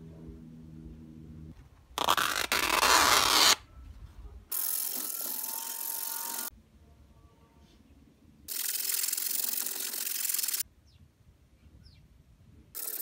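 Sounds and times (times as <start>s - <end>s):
faint low hum: 0.0s - 2.0s, 6.5s - 8.5s.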